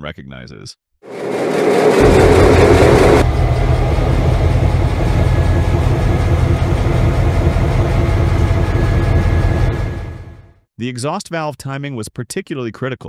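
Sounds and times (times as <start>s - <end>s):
blower whine: 1.1s - 10.6s
diesel locomotive engine rumble: 1.2s - 10.5s.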